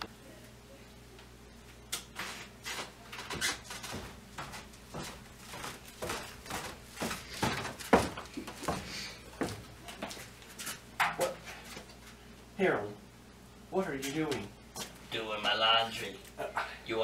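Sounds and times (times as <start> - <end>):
laundry rustling and thumping: 3.2 - 10.1.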